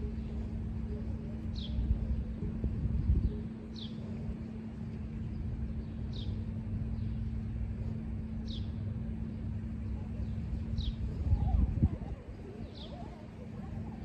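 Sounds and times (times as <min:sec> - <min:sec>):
low rumble: 0:00.0 - 0:12.7
faint hum: 0:00.0 - 0:14.0.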